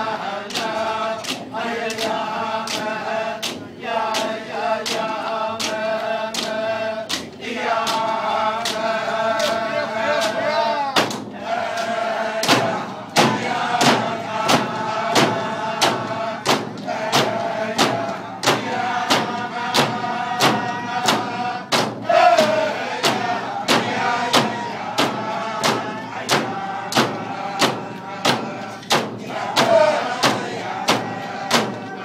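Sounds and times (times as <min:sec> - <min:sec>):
frame drums beaten in unison: 0:00.0 - 0:32.0
group of voices chanting: 0:00.0 - 0:32.0.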